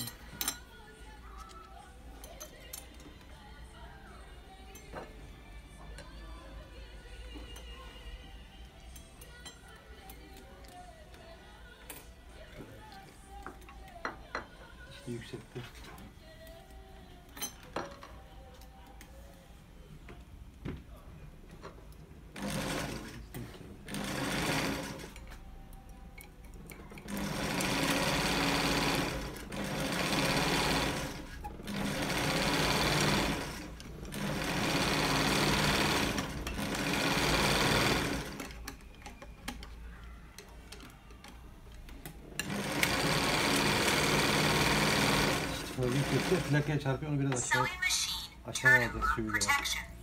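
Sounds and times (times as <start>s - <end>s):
sewing machine running: 22.4s - 23.2s, 23.9s - 25.2s, 27.0s - 38.6s, 42.4s - 46.7s.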